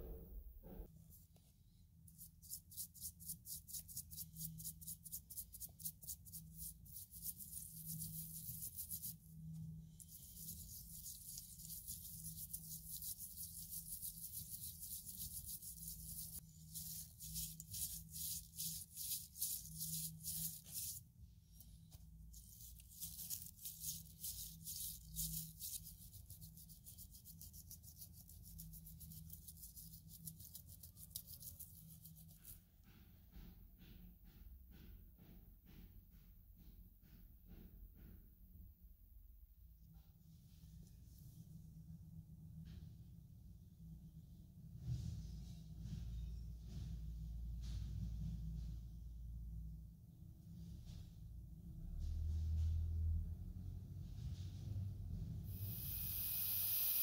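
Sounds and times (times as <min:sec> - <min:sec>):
brush scrubbing plastic: 0:02.1 - 0:32.7.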